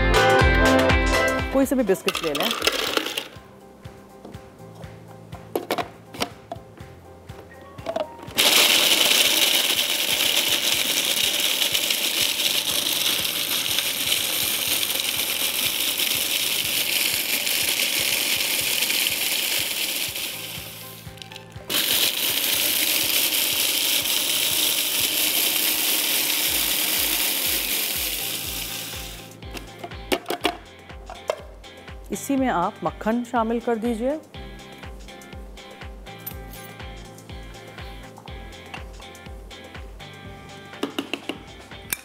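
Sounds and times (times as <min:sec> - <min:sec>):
biscuit pieces rattling in bowl: 0:02.0 - 0:03.4, 0:08.4 - 0:20.5
food processor grinding: 0:02.5 - 0:03.3, 0:08.4 - 0:21.0, 0:21.7 - 0:29.3.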